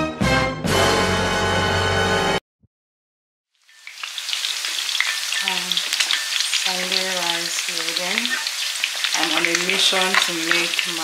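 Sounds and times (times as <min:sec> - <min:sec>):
food sizzling in hot oil: 0:03.6 - 0:11.0.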